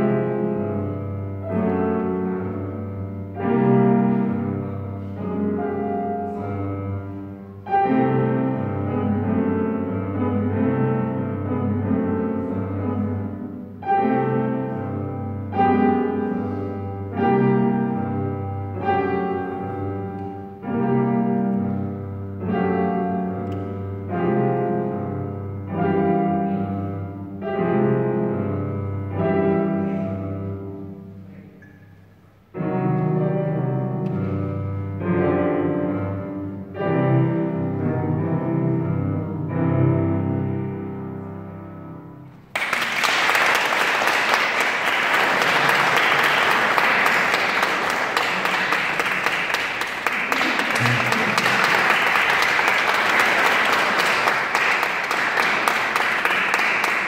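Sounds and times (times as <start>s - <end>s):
piano chords: 0.0s - 57.0s
applause: 42.5s - 57.0s.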